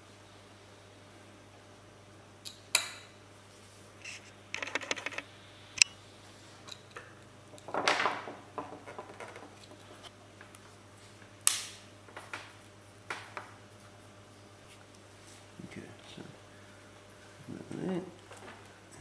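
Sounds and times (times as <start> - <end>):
screwdriver scraping plastic: 4.0 - 5.2.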